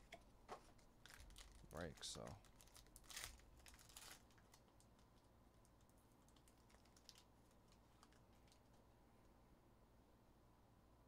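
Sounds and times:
foil pack crinkling: 0.7s - 5.3s, 5.9s - 8.8s.

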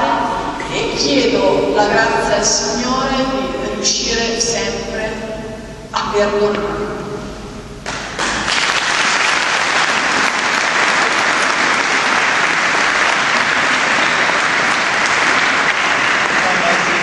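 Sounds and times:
audience applauding: 7.8s - 17.0s.

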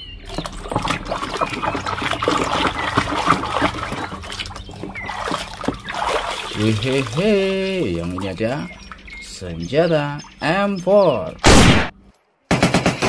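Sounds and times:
wet mud squelching: 0.0s - 10.2s
trickling water: 0.0s - 11.4s.

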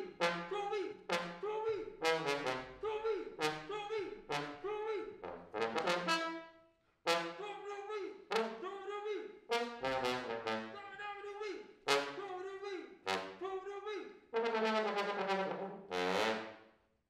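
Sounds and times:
trombone playing jazz-funk: 0.0s - 6.4s, 7.1s - 7.7s, 8.3s - 8.7s, 9.5s - 11.2s, 11.9s - 12.5s, 13.1s - 13.5s, 14.4s - 16.6s.

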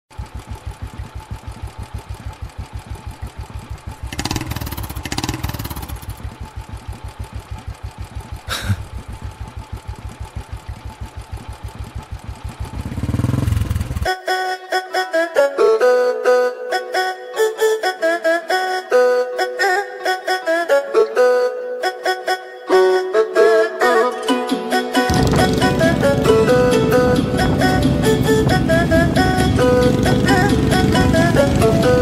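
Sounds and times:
motorcycle engine idling and revving: 0.1s - 14.2s, 25.1s - 32.0s.

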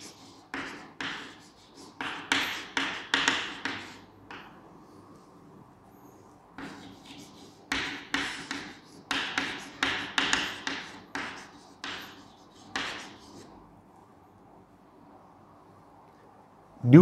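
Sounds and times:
chalk tapping and scraping: 0.0s - 5.3s, 6.6s - 13.5s.

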